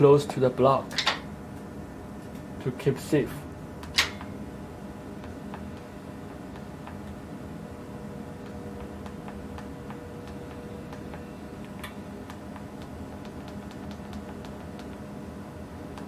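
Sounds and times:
steady low machine hum: 0.0s - 16.0s.

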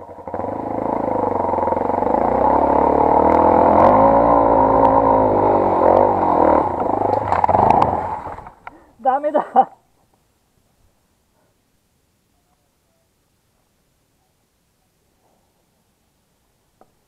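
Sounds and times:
dirt bike engine revving: 0.0s - 8.6s.

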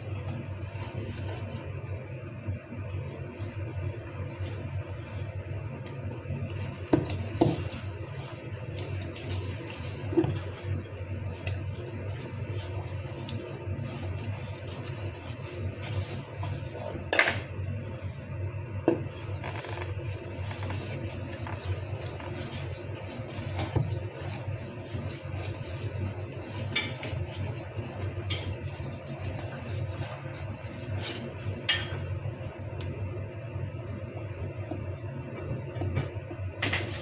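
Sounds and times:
whisk stirring batter: 0.0s - 37.0s
whisk clinking on metal bowl: 20.7s - 32.1s.

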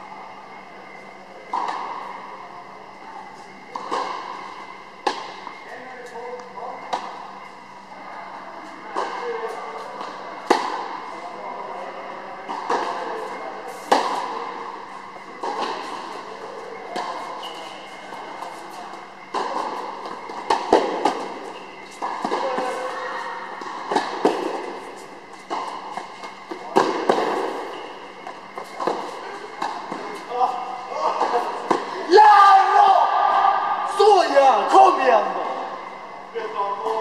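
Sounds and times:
tennis balls struck by rackets: 3.7s - 5.6s, 9.9s - 11.0s, 13.7s - 30.3s, 31.1s - 32.0s
tennis balls bouncing on court: 5.0s - 5.6s, 15.2s - 16.2s, 16.9s - 30.3s, 31.2s - 32.0s.

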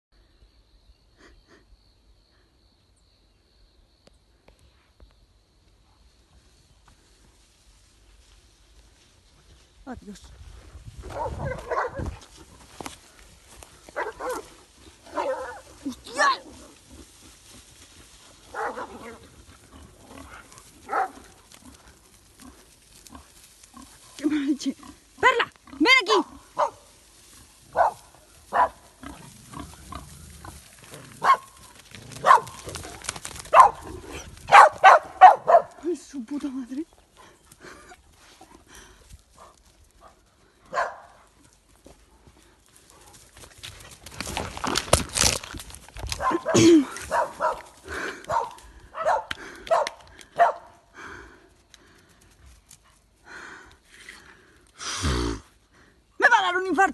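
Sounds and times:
dog barking: 11.1s - 12.1s, 14.0s - 14.5s, 15.1s - 15.6s, 18.5s - 19.2s, 20.8s - 21.2s, 26.6s - 26.8s, 27.7s - 28.8s, 31.2s - 31.5s, 32.2s - 32.6s, 33.5s - 33.9s, 34.5s - 35.8s, 40.0s - 41.2s, 46.2s - 47.7s, 48.3s - 50.7s
wild boar grunting: 14.1s - 26.6s, 27.4s - 35.1s, 54.0s - 56.0s.

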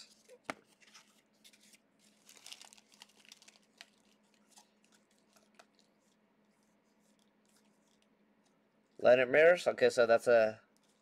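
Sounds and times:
wrapper crinkling and tearing: 0.7s - 5.9s.

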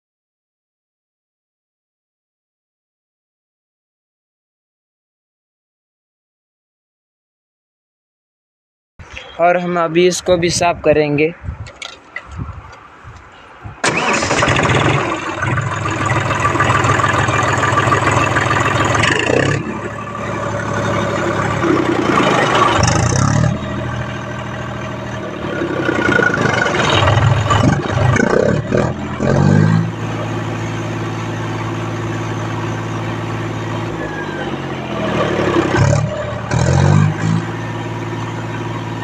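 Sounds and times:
diesel tractor engine revving: 13.8s - 39.0s.

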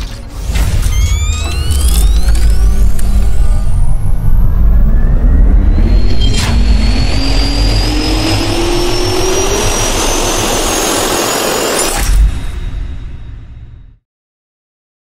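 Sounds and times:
jet turbine spooling up: 0.7s - 12.1s.

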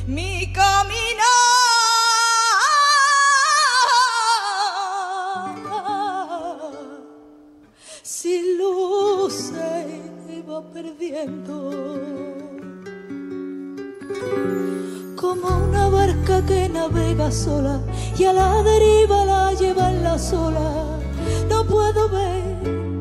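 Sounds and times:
woman singing with vibrato: 0.0s - 7.4s, 8.0s - 12.7s, 14.8s - 23.0s
soft instrumental accompaniment: 9.6s - 23.0s.

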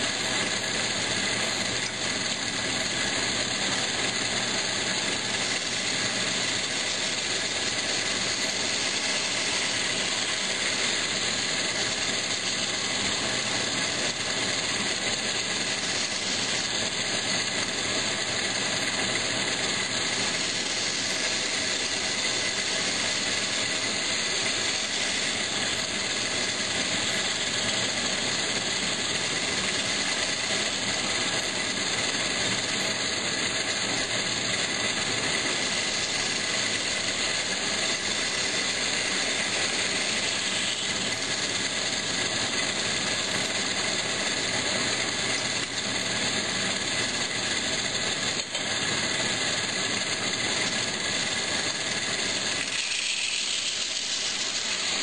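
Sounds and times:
metal-spinning lathe whirring: 0.0s - 55.0s.

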